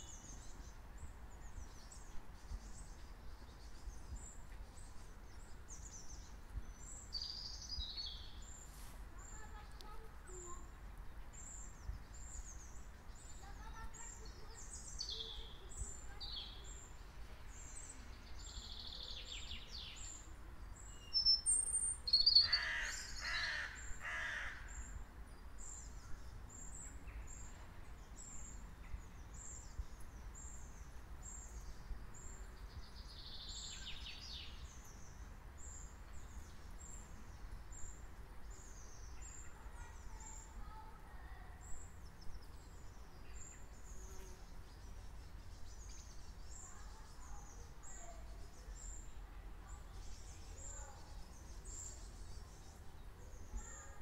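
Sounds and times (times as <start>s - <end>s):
songbirds singing: 0.0s - 54.0s
loud bird call: 22.3s - 24.9s.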